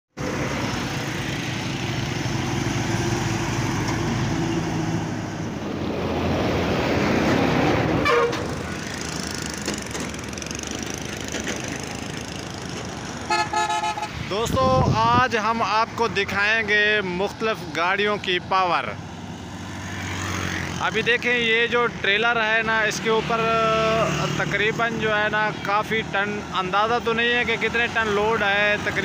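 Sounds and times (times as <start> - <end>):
heavy trucks passing: 0.1 - 29.0
short horn toot: 8.0 - 8.5, 13.3 - 14.1.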